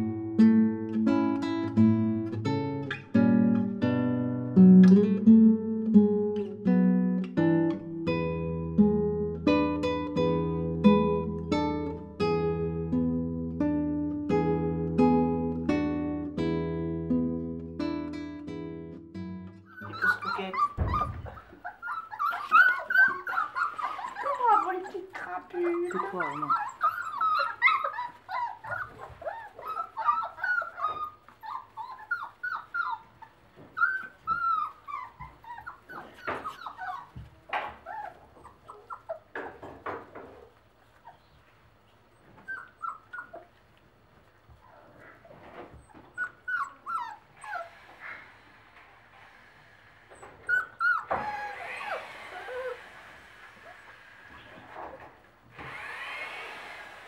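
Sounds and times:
puppies whimpering and yipping: 19.6 - 48.7, 50.1 - 56.5
knocks: 20.8 - 21.7.

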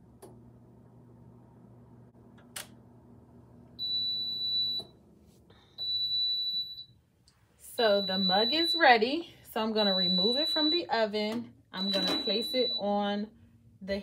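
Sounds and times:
oven running hum: 0.0 - 14.0
long high beeps: 11.8 - 12.9.

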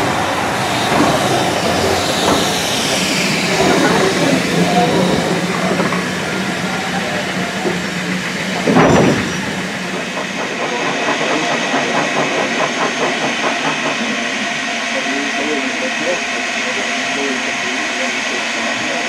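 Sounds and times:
loud burst of steam: 0.0 - 19.0
steady hiss of steam: 0.0 - 19.0
steam locomotives passing: 0.0 - 19.0.

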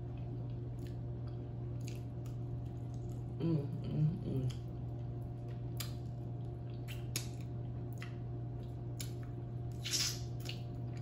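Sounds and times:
steady low hum: 0.0 - 11.0
chewing: 0.1 - 3.4, 4.4 - 11.0
wet mouth smacks: 5.7 - 6.0, 6.7 - 8.2, 9.0 - 10.8.

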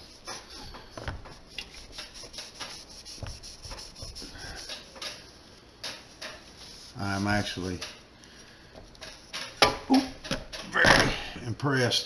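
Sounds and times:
cloth rag scrubbing metal: 0.0 - 8.1.

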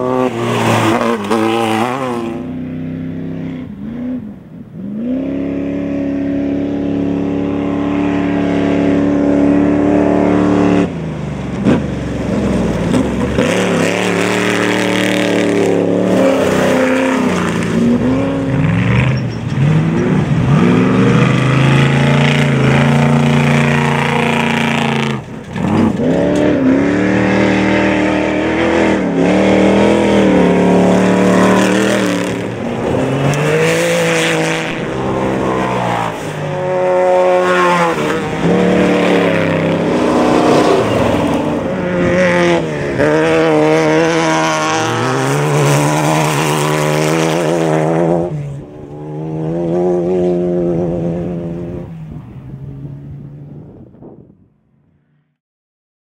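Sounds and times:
tyres rushing on dirt: 0.0 - 2.4, 9.9 - 50.5
truck engines revving: 0.0 - 54.5.

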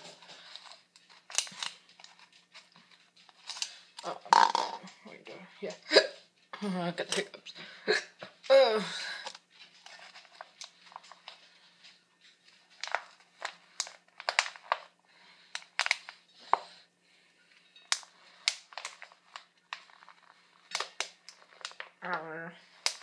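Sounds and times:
plastic bottle crinkling: 0.0 - 4.9, 12.5 - 16.8, 17.8 - 23.0.

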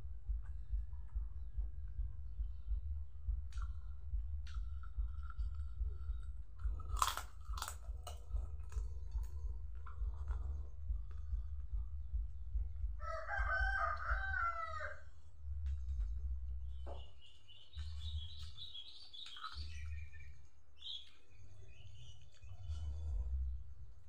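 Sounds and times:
steady low rumble: 0.0 - 24.0
rooster crowing: 13.0 - 15.2
high-pitched bird chirping: 16.7 - 23.4.

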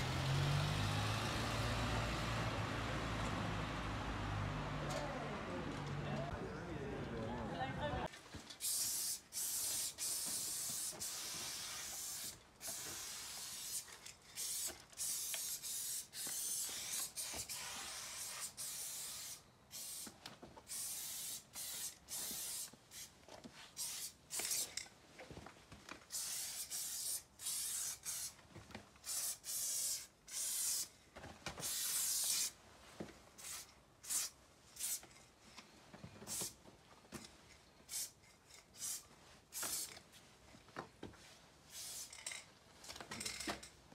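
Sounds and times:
spray paint can hissing: 8.6 - 24.7, 26.1 - 28.4, 29.0 - 30.9, 31.6 - 32.6, 33.4 - 35.0, 36.3 - 36.6, 37.9 - 40.0, 41.7 - 42.4.

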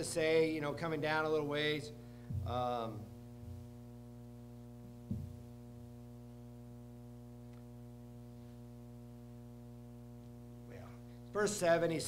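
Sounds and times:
electrical hum: 0.0 - 12.0
soft low thump: 2.2 - 2.8, 3.4 - 3.8, 4.9 - 5.6.

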